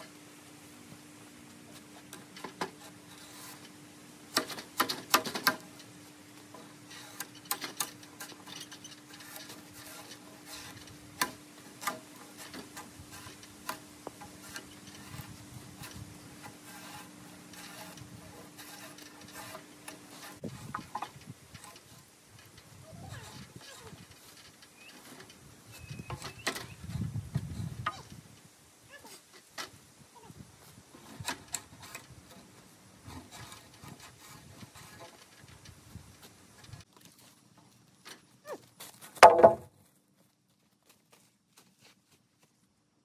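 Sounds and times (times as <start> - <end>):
sharp knocks: 39.2 - 39.7.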